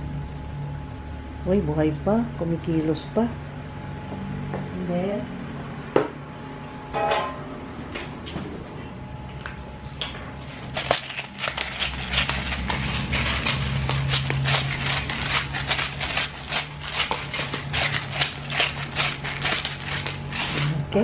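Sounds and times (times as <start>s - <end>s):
salt grains ticking on shells: 10.7s - 20.5s.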